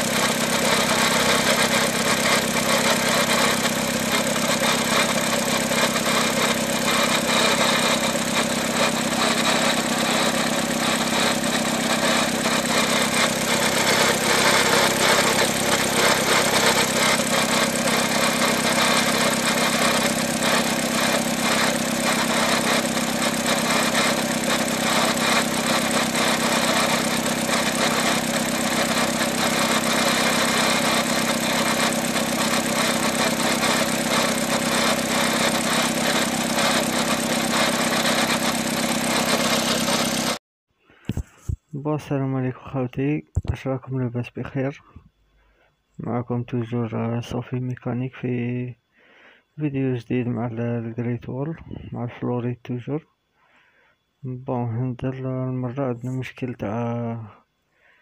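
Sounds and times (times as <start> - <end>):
car engine idling: 0.0 - 40.4
fast rattle from gearbox: 0.0 - 40.4.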